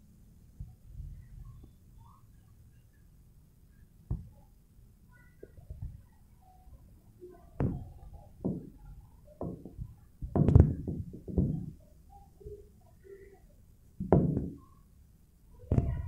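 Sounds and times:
knocks and thumps: 0:04.1 - 0:04.3, 0:07.6 - 0:08.8, 0:09.4 - 0:11.8, 0:14.0 - 0:14.6, 0:15.7 - 0:16.0.

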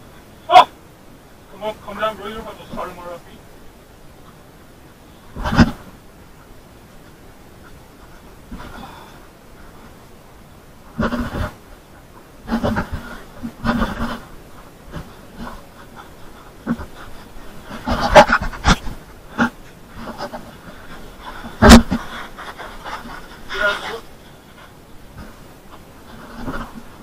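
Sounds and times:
heavy breathing: 0:08.0 - 0:09.9.

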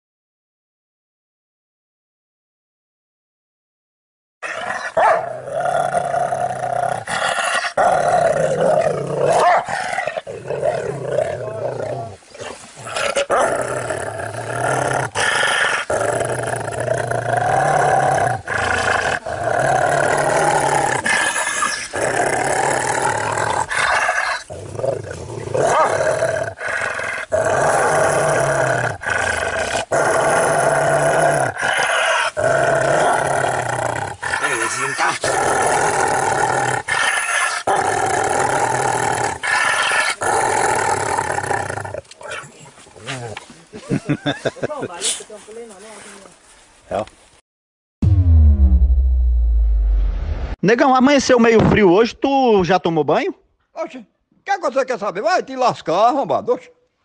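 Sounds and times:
dog growling: 0:04.5 - 0:43.4.

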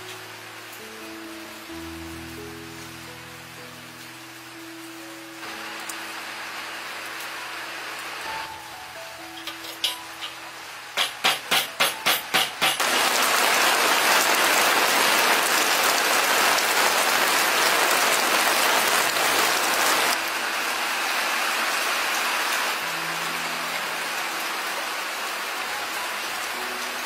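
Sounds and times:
chicken sizzling in hot oil: 0:09.3 - 0:20.6.

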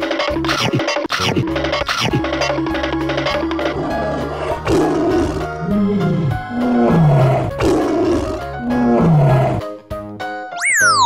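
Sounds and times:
cartoon tiger roar: 0:03.7 - 0:09.7
upbeat children's music: 0:09.8 - 0:11.0.

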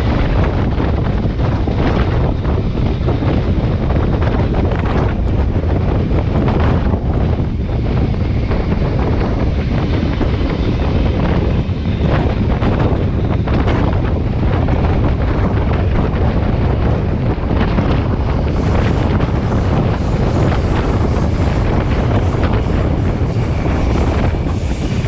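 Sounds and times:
steam train rumbling: 0:00.0 - 0:25.0
wind buffeting microphone: 0:00.0 - 0:25.0.

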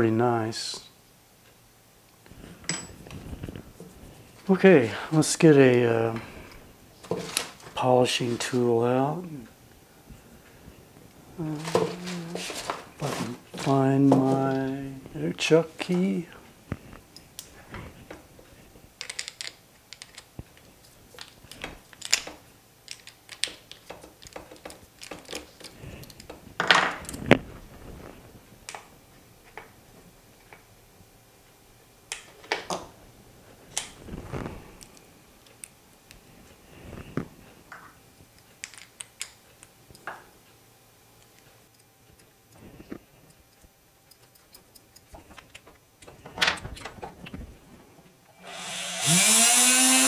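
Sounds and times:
metal tools clicking and clattering: 0:02.6 - 0:03.0.

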